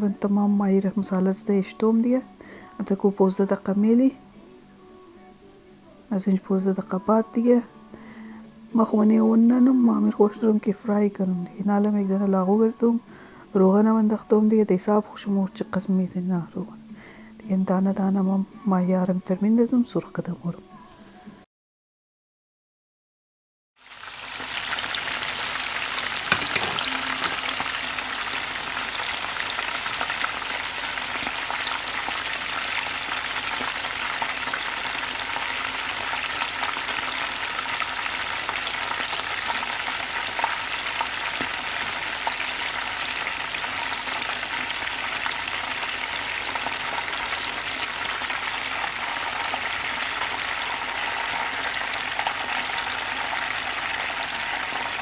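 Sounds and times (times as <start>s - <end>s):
fish sizzling in hot oil: 23.8s - 55.0s.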